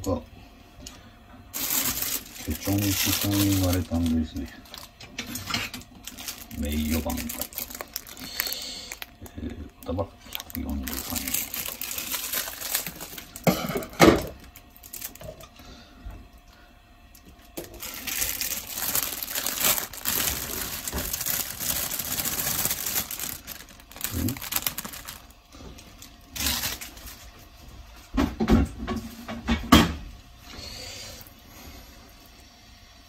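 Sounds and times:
plastic wrap crinkling: 1.5 - 15.5, 17.6 - 27.5.

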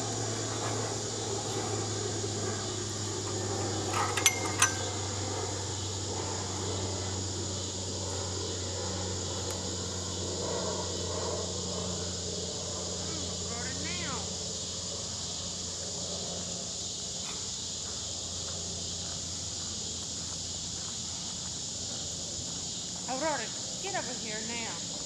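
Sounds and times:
steady outdoor hum: 0.0 - 25.0
metal fittings clinking: 3.9 - 5.0.

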